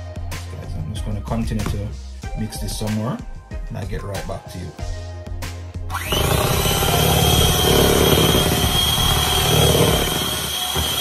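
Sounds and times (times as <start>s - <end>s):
hand mixer motor whine: 5.9s - 11.0s.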